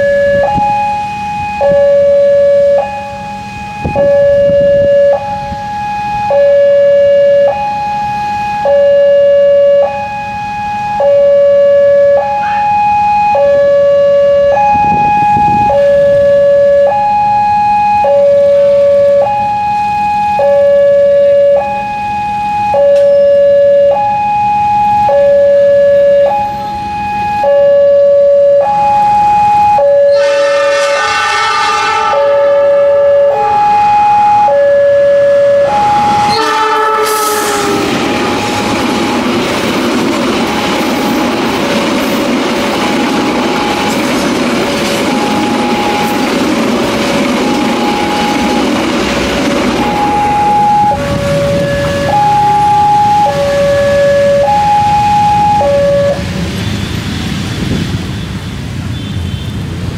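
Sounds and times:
level crossing two-tone siren: 0.0 - 56.4
train horn: 24.9 - 39.2, 47.4 - 54.5, 55.4 - 56.3.

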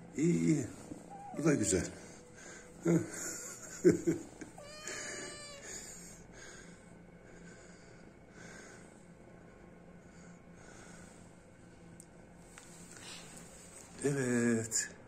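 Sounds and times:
cat meowing: 0.9 - 2.2, 4.6 - 6.2.

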